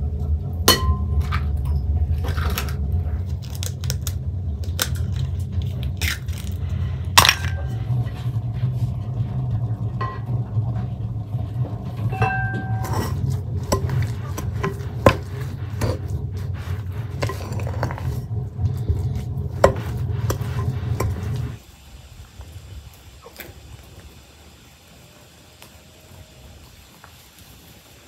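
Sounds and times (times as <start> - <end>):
low hum: 0.0 - 23.9
utensils and dishes clinking: 12.0 - 18.2
ringing metallic strike: 12.1 - 13.8.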